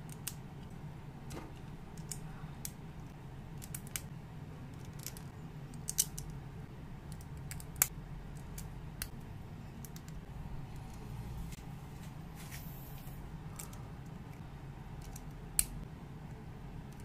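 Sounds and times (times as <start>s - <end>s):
steady low hum: 0.0s - 17.0s
plastic bricks clicking together: 4.8s - 6.3s.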